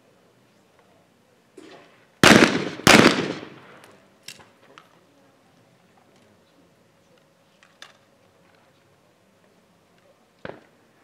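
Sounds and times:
shotgun shot echo: 1.6s - 3.8s.

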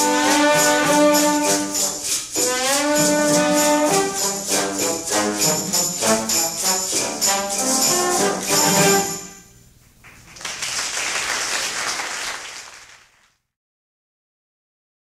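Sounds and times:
trombone ensemble playing: 0.0s - 9.5s
audience applause: 10.0s - 13.4s.

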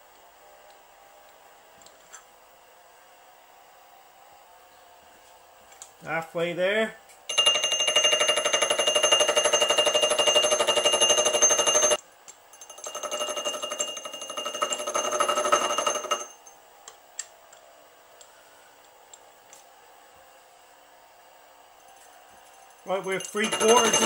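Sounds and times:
high metallic ringing: 7.3s - 16.6s, 21.8s - 24.0s
gear cutter chattering: 22.9s - 24.0s.

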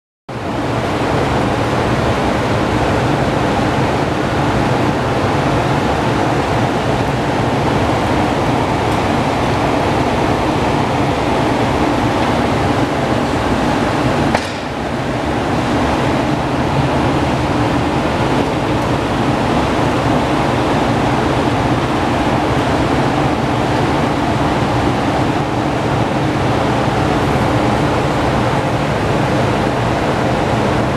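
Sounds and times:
loud rushing noise: 0.3s - 30.9s
low mechanical hum: 0.3s - 30.9s
sharp click: 14.3s - 14.8s.

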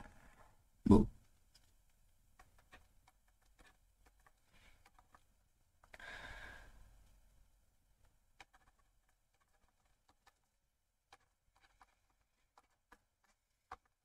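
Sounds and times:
soft breath out: 5.9s - 7.0s.

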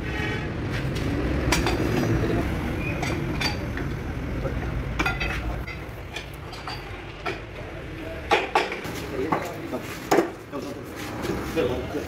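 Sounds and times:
metal tools clinking on metal: 2.8s - 3.9s, 5.0s - 7.5s.

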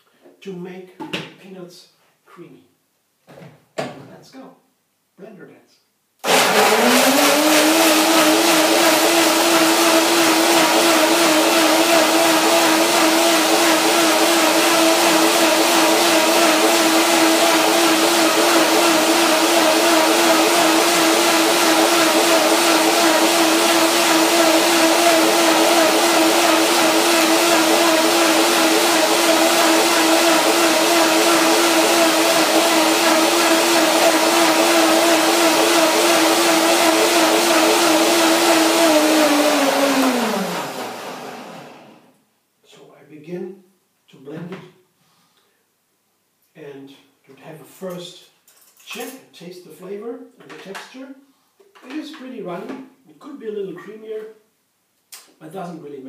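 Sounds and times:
blender running at high speed: 6.2s - 42.1s.

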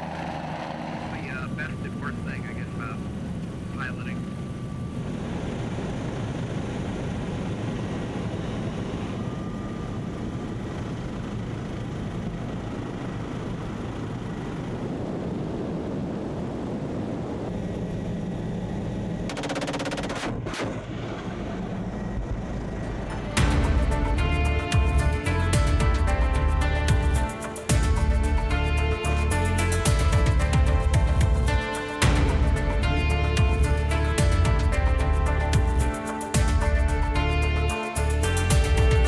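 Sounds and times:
helicopter rotor and engine: 0.0s - 39.0s
machine-gun fire: 19.3s - 20.7s.

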